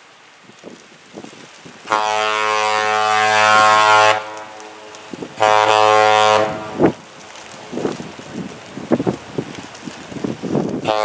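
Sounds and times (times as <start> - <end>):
deep ship air horn blasts: 1.9 - 7.0, 10.8 - 11.0.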